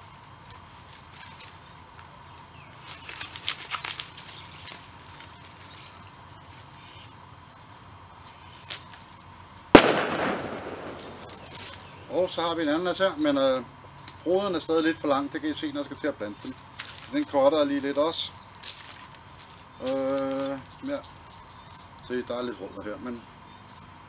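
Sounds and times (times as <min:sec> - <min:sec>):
dry leaves rustling and snapping: 0:00.0 - 0:12.6, 0:13.9 - 0:20.6
sharp crack with crackling: 0:09.7 - 0:12.6.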